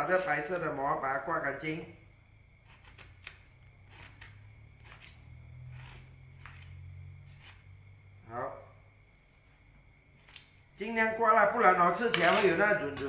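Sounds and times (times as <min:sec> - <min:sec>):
steady low hum: 0:00.0 - 0:13.0
knife scraping gourd: 0:02.6 - 0:07.8, 0:10.2 - 0:10.7, 0:11.8 - 0:13.0.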